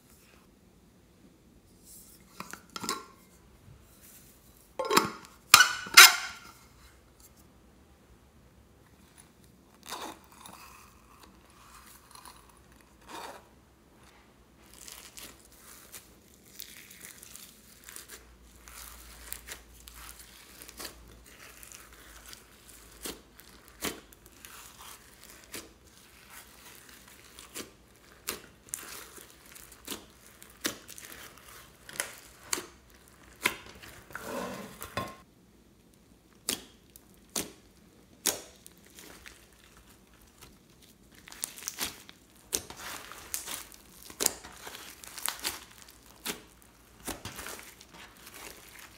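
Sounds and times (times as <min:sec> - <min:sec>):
hands kneading sticky slime: 0:08.9 - 0:34.2, 0:35.8 - 0:48.9.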